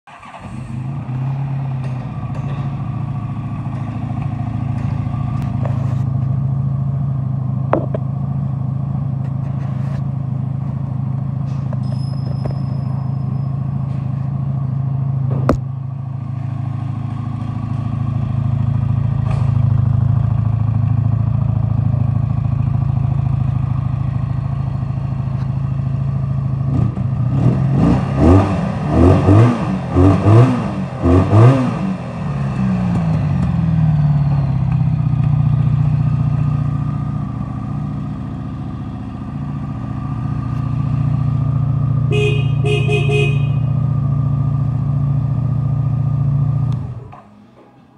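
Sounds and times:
motorcycle engine idling and revving: 0:00.1 - 0:47.9
motorcycle horn pulses: 0:42.1 - 0:44.0.

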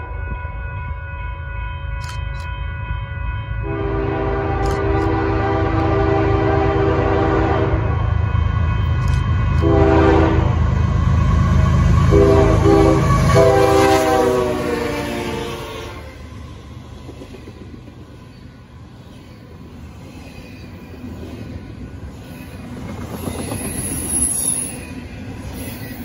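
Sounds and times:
locomotive air horn blasts: 0:03.6 - 0:08.1, 0:09.6 - 0:10.6, 0:12.0 - 0:16.2.

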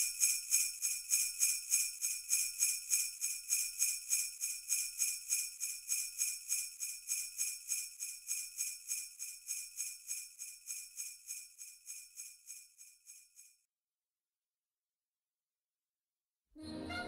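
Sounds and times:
small bells shaking rhythmically: 0:00.0 - 0:13.3.

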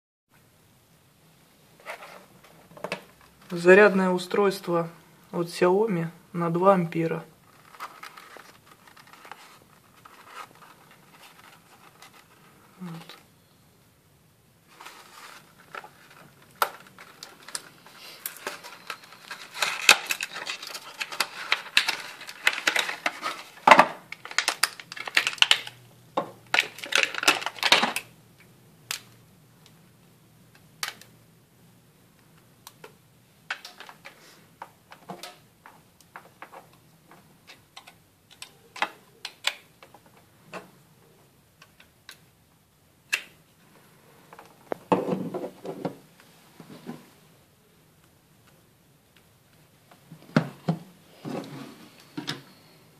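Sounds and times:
packaging rustling: 0:07.4 - 0:13.2, 0:14.7 - 0:25.8, 0:26.5 - 0:28.1.

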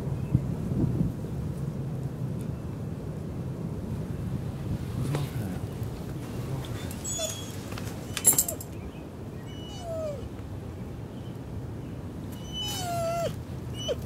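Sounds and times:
dog whimpering: 0:06.9 - 0:08.6, 0:09.5 - 0:10.3, 0:12.4 - 0:14.0
dog yipping: 0:07.0 - 0:08.7, 0:09.5 - 0:10.3, 0:12.4 - 0:14.0.

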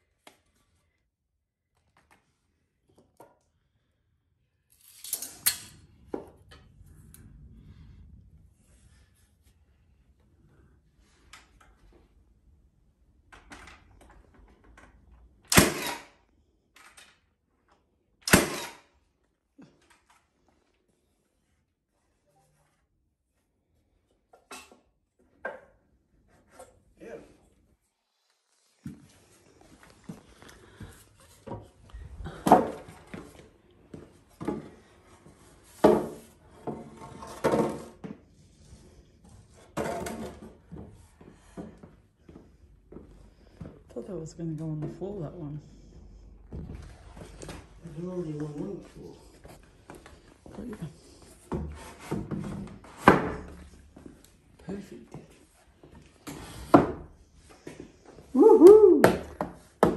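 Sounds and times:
nail gun firing: 0:15.5 - 0:16.1, 0:18.2 - 0:18.9.

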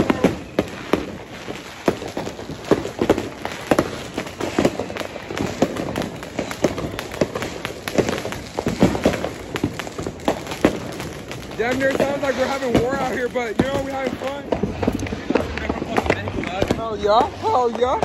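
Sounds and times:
firecrackers banging and popping: 0:00.0 - 0:18.0.

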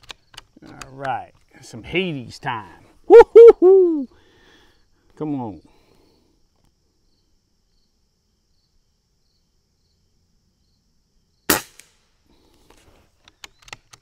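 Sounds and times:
air rifle shot: 0:11.5 - 0:12.0.

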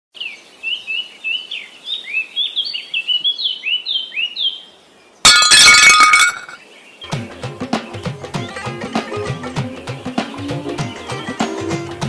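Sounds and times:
bird chirping: 0:00.2 - 0:05.2.

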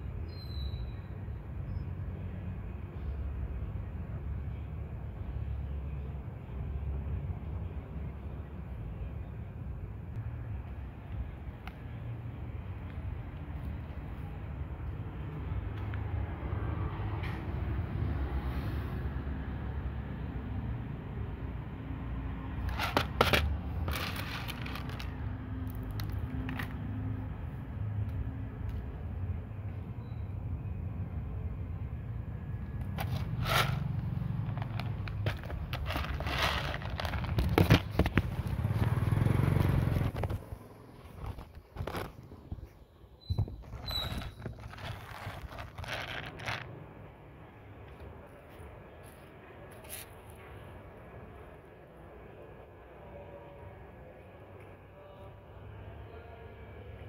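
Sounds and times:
cat crunching dry kibble: 0:22.6 - 0:25.1, 0:32.9 - 0:38.5, 0:44.2 - 0:46.7.

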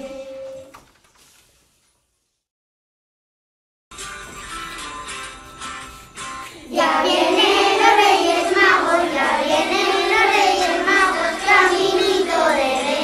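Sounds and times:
young children singing together: 0:00.0 - 0:00.8, 0:06.6 - 0:13.0.

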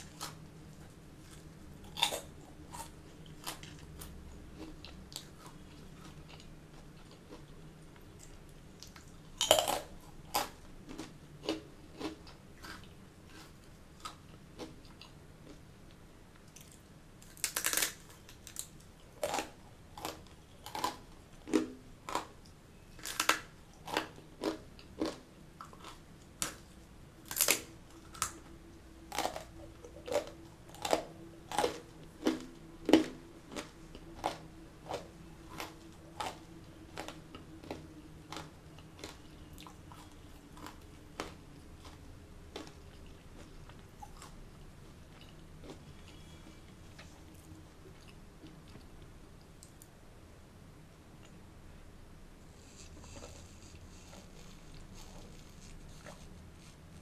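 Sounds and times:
crunching and chewing snacks: 0:00.0 - 0:15.6, 0:16.4 - 0:49.8, 0:52.6 - 0:57.0
loud crunchy bite: 0:01.3 - 0:05.3, 0:08.8 - 0:14.7, 0:16.6 - 0:22.4, 0:27.2 - 0:28.4.

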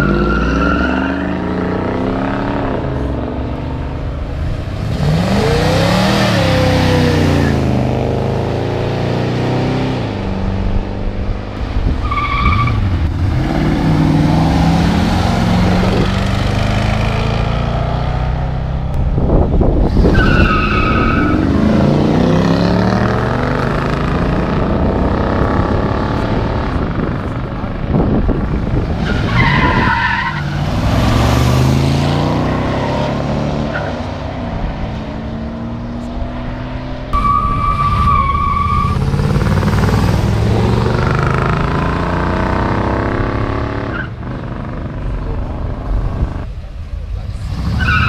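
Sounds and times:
tire squeals: 0:00.0 - 0:01.6, 0:12.0 - 0:13.0, 0:19.8 - 0:21.6, 0:29.0 - 0:31.4, 0:32.4 - 0:34.1, 0:37.1 - 0:39.4, 0:43.8 - 0:44.2, 0:47.6 - 0:48.0
car engines revving hard: 0:00.0 - 0:48.0.

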